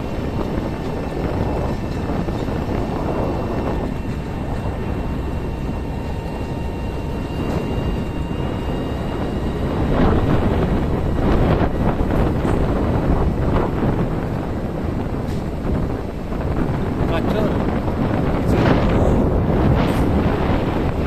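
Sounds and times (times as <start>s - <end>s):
vehicle rumble on bumpy track: 0.0s - 21.0s
wind buffeting microphone: 0.0s - 21.0s
faint high whine: 2.5s - 13.3s.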